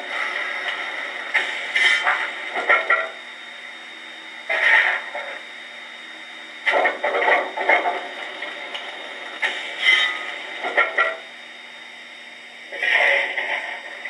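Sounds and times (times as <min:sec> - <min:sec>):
model steam engine sound effects: 0:00.0 - 0:03.3, 0:04.4 - 0:05.5, 0:06.6 - 0:11.5, 0:12.6 - 0:14.0.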